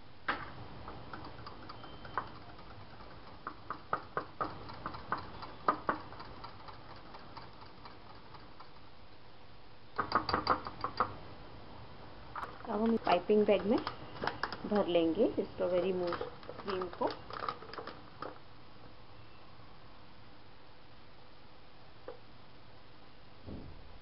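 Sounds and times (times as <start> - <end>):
whisk and spoon tapping glass bowl: 1.0 - 8.8.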